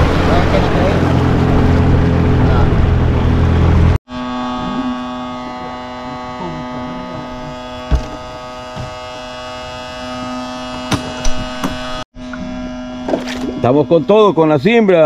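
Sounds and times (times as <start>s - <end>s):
outboard motor idling: 0.0s - 11.0s
sharp knocks: 7.8s - 9.0s, 10.7s - 12.0s.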